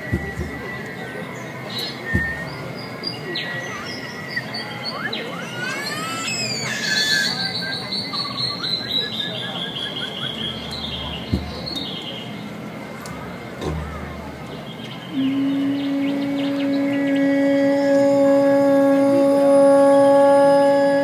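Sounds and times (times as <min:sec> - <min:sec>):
bird-like chirps and whistles: 0:00.0 - 0:12.4
thin steady high tone: 0:00.0 - 0:21.0
low thump: 0:00.1 - 0:00.8, 0:02.2 - 0:02.6, 0:11.0 - 0:11.9, 0:13.6 - 0:14.3.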